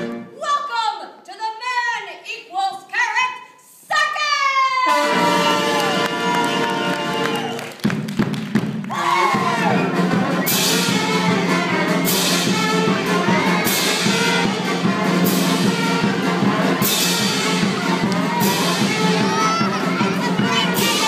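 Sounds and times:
brass band music: 0.0s - 0.4s, 4.8s - 21.0s.

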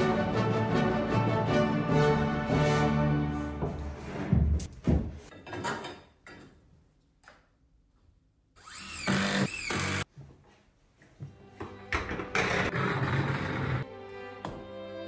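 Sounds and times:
cordless drill running: 8.6s - 10.0s.

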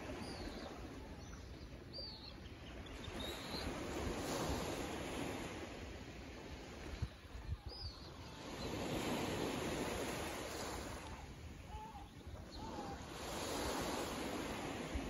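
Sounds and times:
faint bird chirps: 0.1s - 3.9s, 11.1s - 13.2s.

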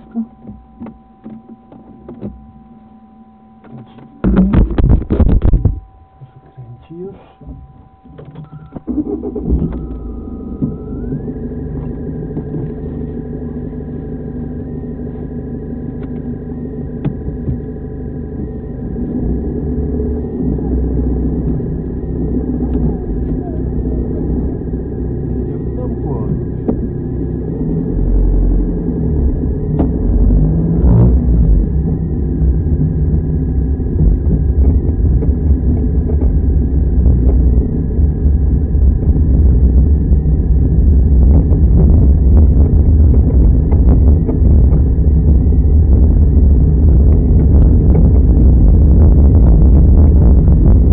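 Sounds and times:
car engine idling: 0.0s - 50.9s.

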